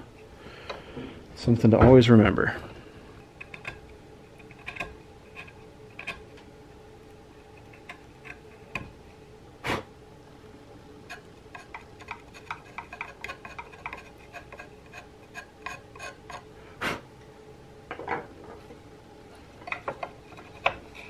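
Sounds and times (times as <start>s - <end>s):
chisel clicking and scraping wood: 3.3s - 6.4s, 7.4s - 9.0s, 11.1s - 16.5s, 19.6s - 21.0s.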